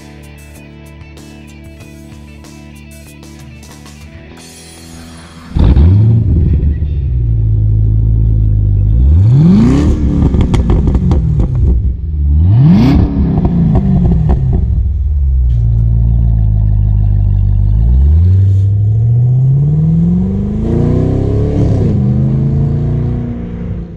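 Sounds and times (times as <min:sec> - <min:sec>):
exhaust crackling: 0:05.0 - 0:23.9
car accelerating away: 0:05.2 - 0:23.9
car engine throttle blips: 0:05.4 - 0:23.9.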